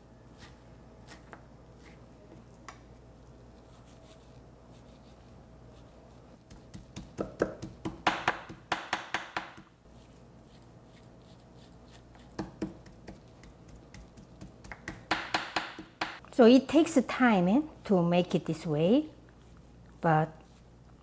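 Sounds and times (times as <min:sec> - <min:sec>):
knife chopping meat on wooden board: 0:06.5 - 0:09.7, 0:12.3 - 0:16.2.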